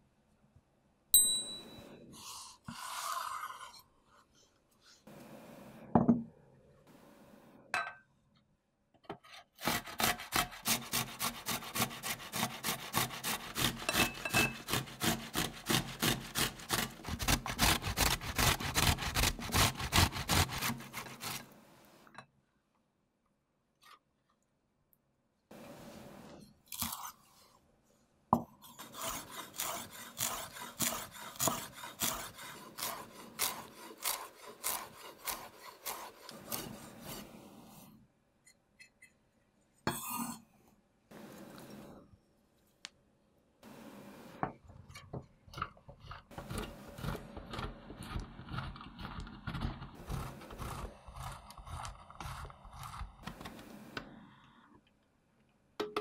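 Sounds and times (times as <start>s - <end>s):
cheese scraping on metal grater: 9.4s - 21.6s, 28.7s - 37.4s, 45.7s - 53.4s
knife chopping on wooden board: 29.0s - 36.7s.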